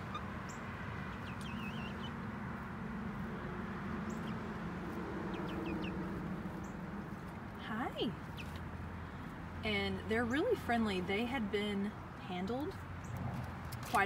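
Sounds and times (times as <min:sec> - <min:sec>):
young chickens peeping: 0:00.0 - 0:09.4.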